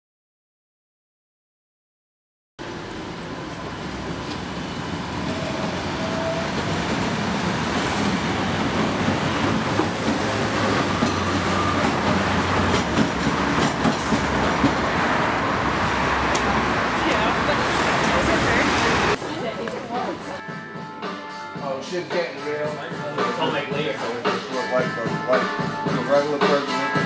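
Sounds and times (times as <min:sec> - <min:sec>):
traffic rumble: 0:02.6 - 0:20.4
footsteps on pavement: 0:17.9 - 0:20.5.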